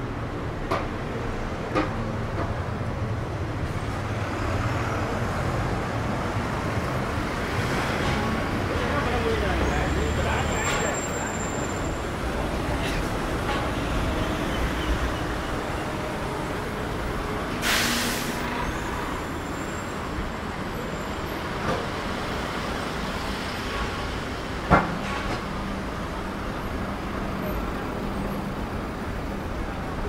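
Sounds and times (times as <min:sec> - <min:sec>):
passing traffic: 0:00.0 - 0:30.0
short loud hiss: 0:17.6 - 0:18.4.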